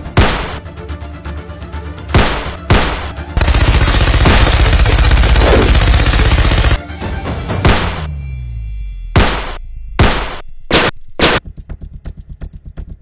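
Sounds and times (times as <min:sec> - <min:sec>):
single gunshots: 0:00.0 - 0:00.6, 0:02.1 - 0:03.1, 0:09.2 - 0:11.4
background music: 0:00.0 - 0:08.9
machine-gun fire: 0:02.2 - 0:06.8.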